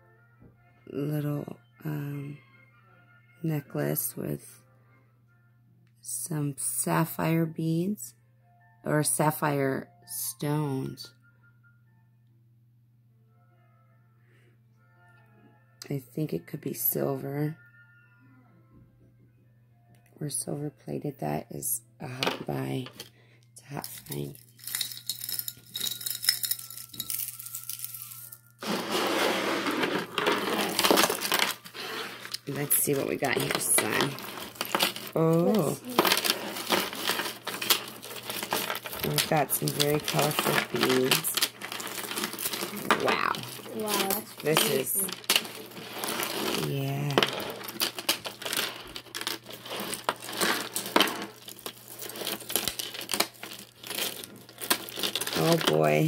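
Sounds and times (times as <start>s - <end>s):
beads clinking against glass jar: 22.3s - 56.0s
beads and chains jingling: 23.8s - 28.4s, 29.8s - 56.0s.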